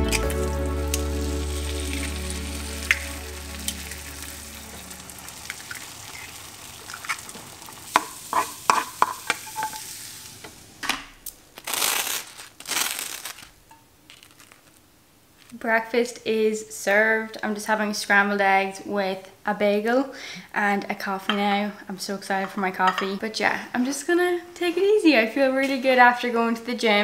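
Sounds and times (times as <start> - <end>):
background music: 0.0 - 6.2
eggs sizzling in a frying pan: 0.0 - 15.8
spatula scraping a pan: 7.9 - 10.0.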